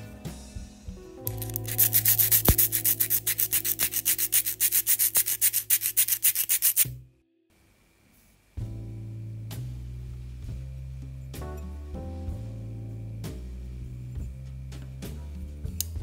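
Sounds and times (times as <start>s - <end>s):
metal grinding on sanding disc: 1.3s - 6.9s.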